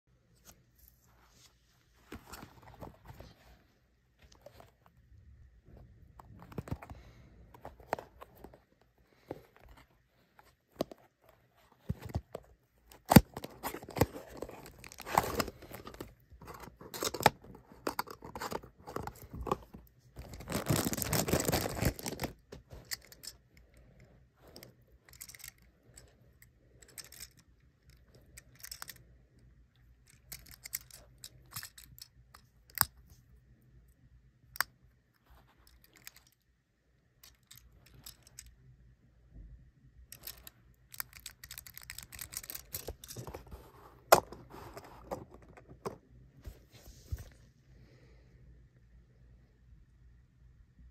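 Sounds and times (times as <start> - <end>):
cardboard box rustling: 11.6 - 22.8
plastic bag crinkling and tearing: 20.2 - 22.4.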